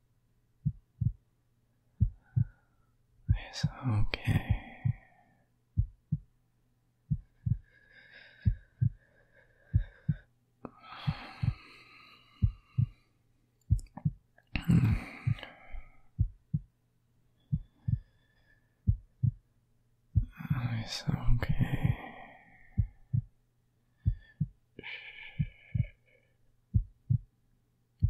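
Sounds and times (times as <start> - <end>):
faint low hum: 0.0 - 28.0
heartbeat thumps: 0.6 - 1.2, 2.0 - 2.6, 3.2 - 5.1, 5.7 - 6.3, 7.1 - 10.3, 11.0 - 11.7, 12.4 - 13.0, 13.7 - 16.7, 17.5 - 18.1, 18.8 - 19.5, 20.1 - 20.4, 21.3 - 22.1, 22.7 - 23.4, 24.0 - 26.0, 26.7 - 27.3
soft breathing: 2.0 - 5.5, 7.1 - 13.2, 14.5 - 16.6, 17.3 - 19.4, 20.2 - 27.2.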